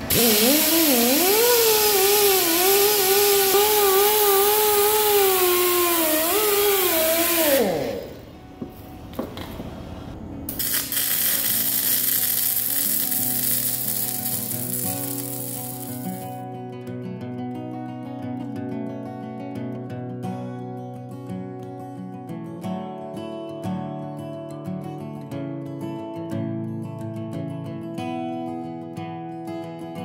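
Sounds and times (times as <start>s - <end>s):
angle grinder grinding steel: 0.0s - 8.3s, 10.5s - 16.4s
welding arc hissing: 0.0s - 8.4s, 10.5s - 16.4s
background music: 8.0s - 16.3s.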